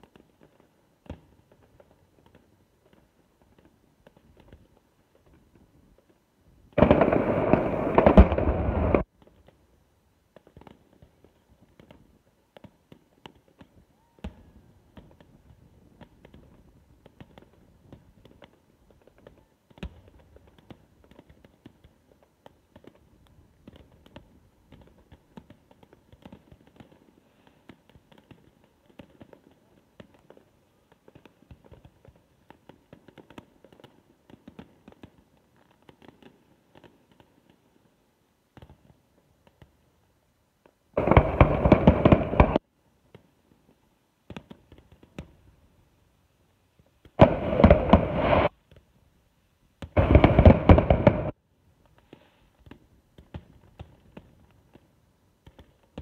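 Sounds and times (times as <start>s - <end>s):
dense rush of fireworks: 0.0s - 56.0s
fireworks popping and crackling: 0.0s - 56.0s
sharp fireworks bangs: 6.7s - 9.5s, 41.0s - 42.6s, 47.0s - 48.5s, 49.8s - 51.4s.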